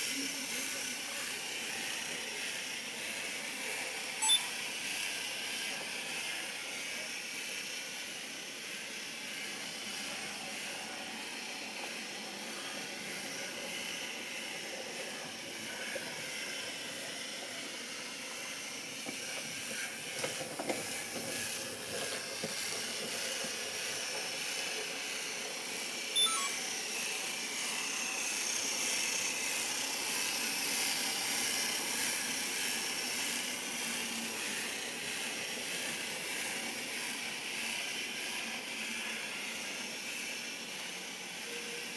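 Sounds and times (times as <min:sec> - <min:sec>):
short electronic beep: 0:04.2 - 0:04.6, 0:26.2 - 0:26.6.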